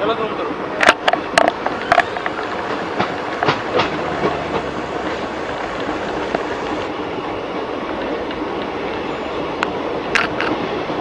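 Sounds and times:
train wheels rushing on rails: 0:00.0 - 0:11.0
sharp rail clicks: 0:00.8 - 0:06.9.

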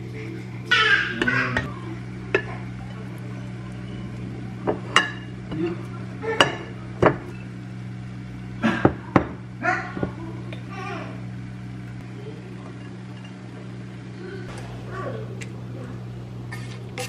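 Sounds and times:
steady low hum: 0:00.0 - 0:17.0
rice paddle knocking on pot and plates: 0:04.6 - 0:05.8.

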